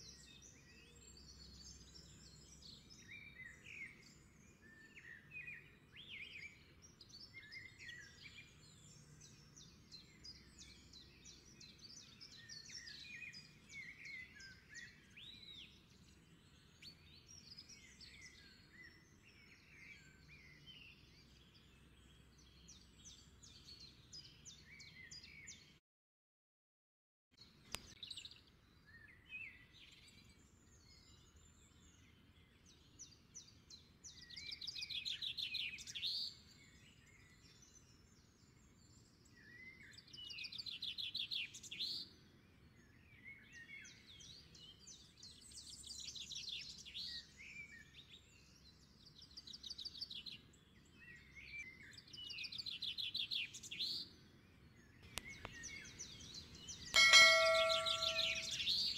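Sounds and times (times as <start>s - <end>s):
birdsong trills and chirps: 27.4s - 58.9s
short bright chime: 57.0s - 58.9s.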